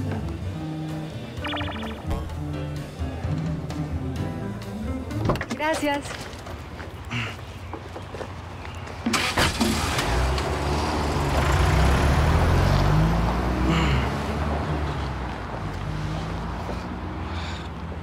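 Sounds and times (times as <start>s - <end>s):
car engine pulling away: 9.1s - 18.0s.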